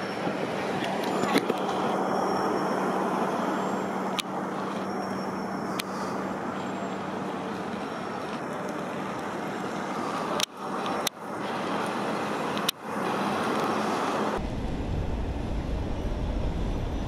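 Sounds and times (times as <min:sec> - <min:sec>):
city road traffic: 0:00.0 - 0:17.0
sharp clicks: 0:10.1 - 0:11.2, 0:11.8 - 0:12.8
low steady hum: 0:14.4 - 0:17.0.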